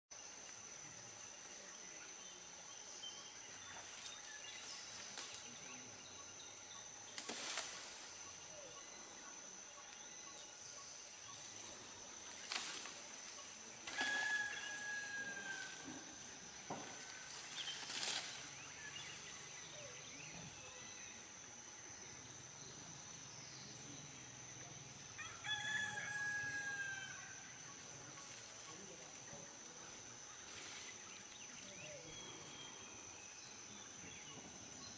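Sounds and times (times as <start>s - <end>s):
high insect whine: 0.2s - 34.9s
palm fronds snapping: 7.1s - 8.0s, 12.4s - 13.0s, 13.8s - 14.5s, 16.8s - 18.4s
elephant call: 13.8s - 16.1s.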